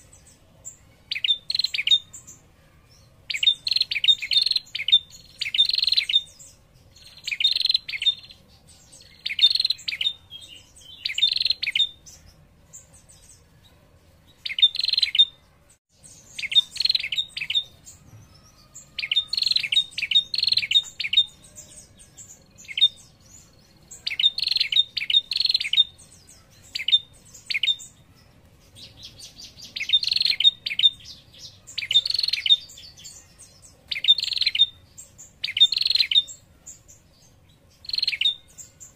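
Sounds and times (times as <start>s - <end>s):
songbird high trilling calls: 0.0s - 2.4s, 3.3s - 13.3s, 14.3s - 15.4s, 16.1s - 37.1s, 37.8s - 38.9s.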